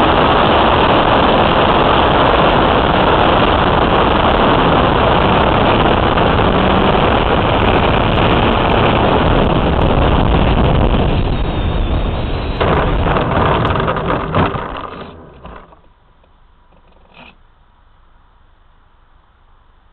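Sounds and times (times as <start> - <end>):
model airplane engine: 0.0 - 15.9
rushing air: 0.0 - 15.9
knocks of touching down: 12.6 - 16.0.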